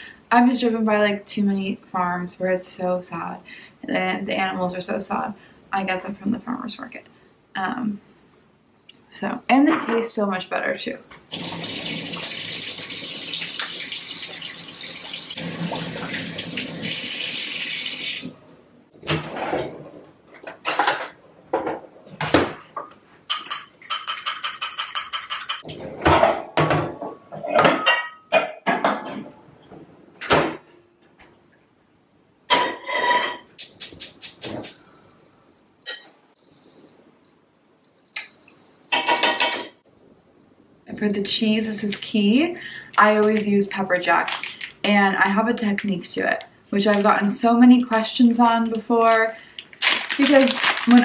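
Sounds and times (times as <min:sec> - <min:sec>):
faucet running into sink: 0:11.3 - 0:18.4
utensil clinking against bowl: 0:23.3 - 0:25.7.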